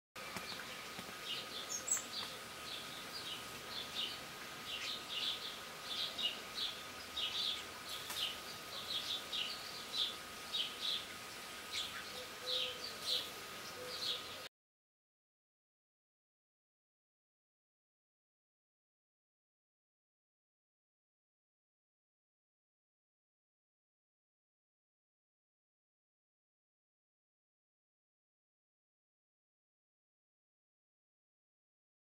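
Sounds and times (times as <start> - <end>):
small birds chirping: 0.2 - 14.5.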